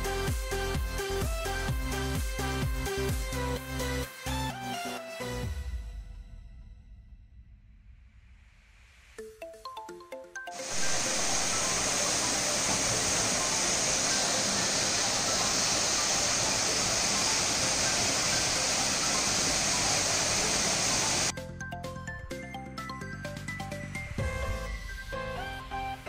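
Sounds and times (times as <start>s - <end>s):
background music: 0.0s - 6.7s, 9.2s - 26.0s
waterfall rushing: 10.6s - 21.3s.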